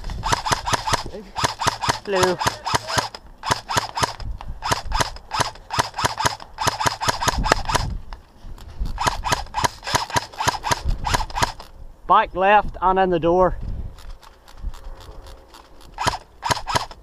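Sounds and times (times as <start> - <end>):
airsoft rifle shots: 0.0 - 7.9, 8.9 - 11.7, 15.6 - 17.0.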